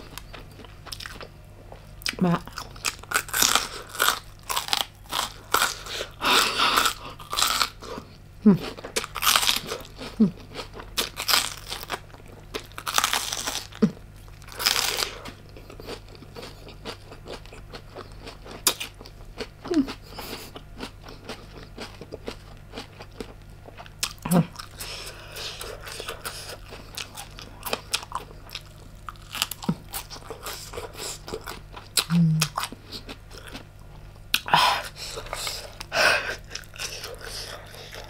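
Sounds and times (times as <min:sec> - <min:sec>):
crunching bites: 0:02.1 - 0:07.9, 0:08.8 - 0:13.8.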